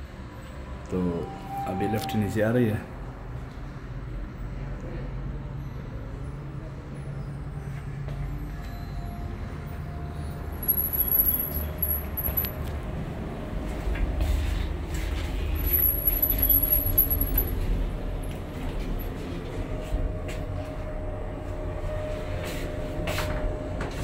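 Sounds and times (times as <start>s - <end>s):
low rumble of moving lift: 0.0s - 24.0s.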